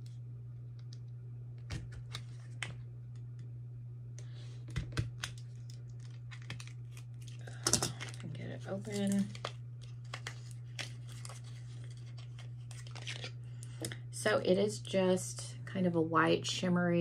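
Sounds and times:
steady low hum: 0:00.0 - 0:17.0
wrapping crinkling: 0:05.2 - 0:13.8.

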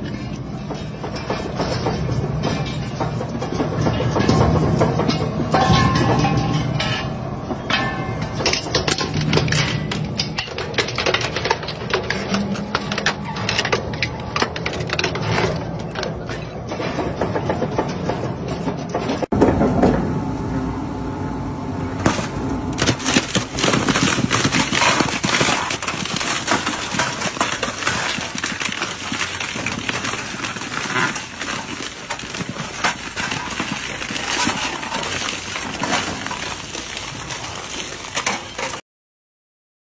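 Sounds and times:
shredder crushing metal: 0:07.7 - 0:19.6, 0:22.0 - 0:38.8.

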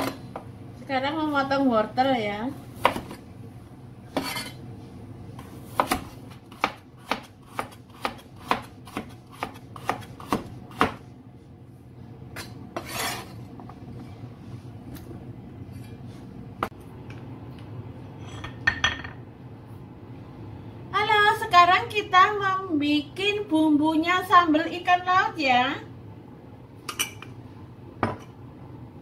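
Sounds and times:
knife chopping on cutting board: 0:02.8 - 0:03.2, 0:05.7 - 0:11.0.

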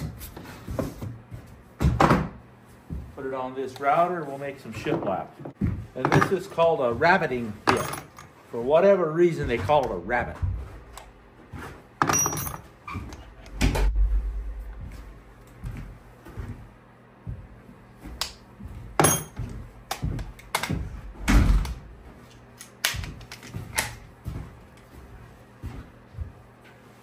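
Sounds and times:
heavier thuds: 0:13.5 - 0:15.3, 0:20.0 - 0:22.0.

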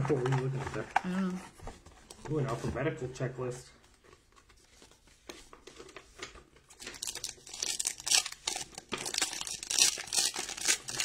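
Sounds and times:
foil wrapper tearing and crinkling: 0:06.8 - 0:11.0.

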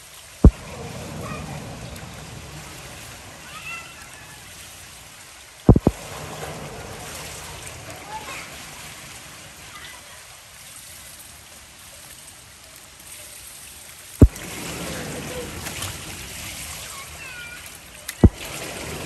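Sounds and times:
pool water splashing: 0:00.0 - 0:19.0
sharp low thump: 0:05.7 - 0:06.0.

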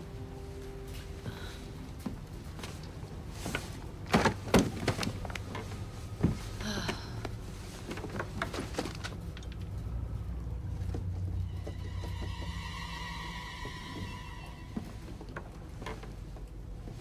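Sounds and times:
low steady rumble: 0:00.0 - 0:17.0
sharp knocks and rustles: 0:07.5 - 0:09.8
short high creak: 0:11.4 - 0:16.1.

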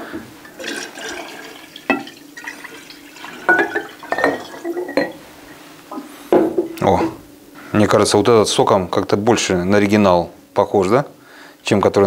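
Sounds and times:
liquid pouring and splashing: 0:00.4 - 0:05.1
glass jars clinking: 0:00.5 - 0:05.2.

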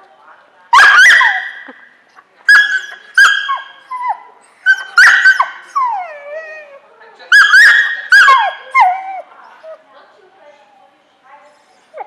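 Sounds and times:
dog yipping: 0:00.7 - 0:01.8, 0:02.5 - 0:06.7, 0:07.3 - 0:09.8
dog whining: 0:02.5 - 0:06.8, 0:07.4 - 0:09.8.

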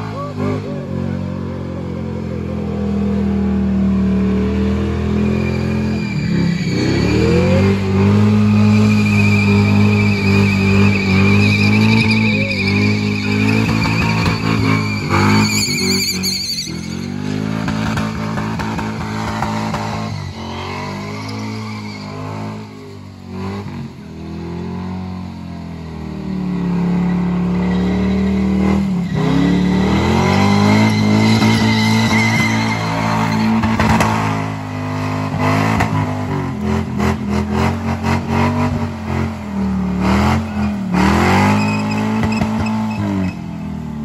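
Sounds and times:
tyres spinning and skidding: 0:00.0 - 0:44.0
car engine revving hard: 0:26.5 - 0:43.4.

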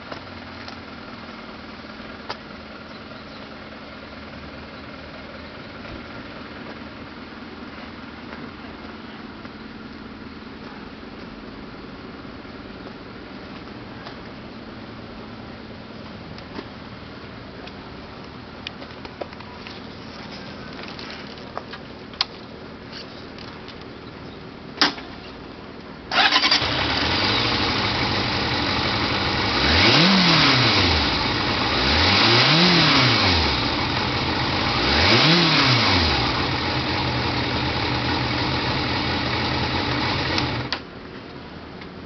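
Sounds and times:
motorcycle engine starting and revving: 0:26.1 - 0:40.9.

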